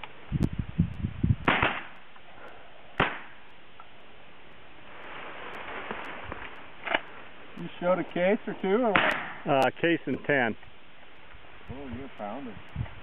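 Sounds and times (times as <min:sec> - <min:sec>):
shotgun shots: 0:01.5 - 0:02.0, 0:03.0 - 0:03.4, 0:08.9 - 0:09.4.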